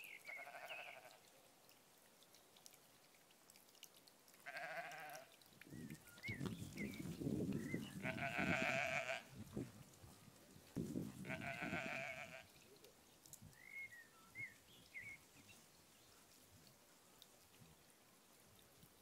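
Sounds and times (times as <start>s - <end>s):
sheep bleating: 0.3s - 1.2s, 4.4s - 5.3s, 8.0s - 9.3s, 11.2s - 12.5s.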